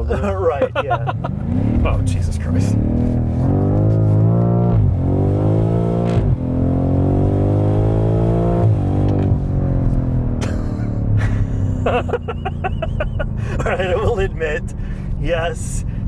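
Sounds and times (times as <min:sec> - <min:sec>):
car engine accelerating and upshifting: 0:00.0 - 0:16.0
exhaust crack: 0:01.0 - 0:05.0.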